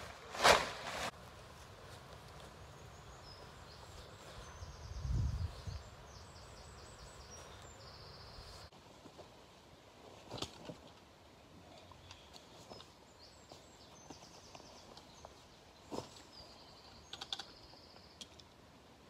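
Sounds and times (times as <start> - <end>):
small sharp clicks and knocks: 17.1 - 17.6.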